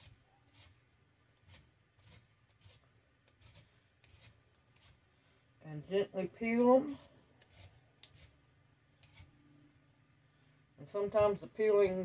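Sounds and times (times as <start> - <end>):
vegetable peeler scraping: 0.0 - 0.8, 1.4 - 5.0, 6.8 - 8.4, 9.0 - 9.3.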